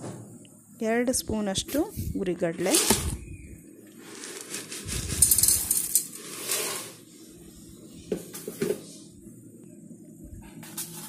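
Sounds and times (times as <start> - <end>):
grains pattering on steel: 4.0 - 6.1.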